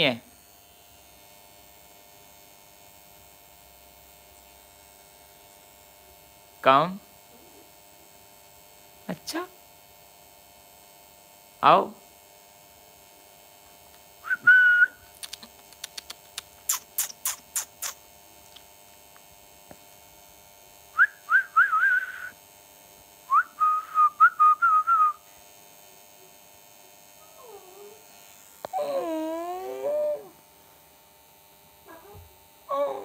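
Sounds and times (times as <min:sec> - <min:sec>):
person whistling: 0:14.2 - 0:15.0, 0:21.0 - 0:22.3, 0:23.3 - 0:25.2
sharp clicks: 0:15.2 - 0:18.0.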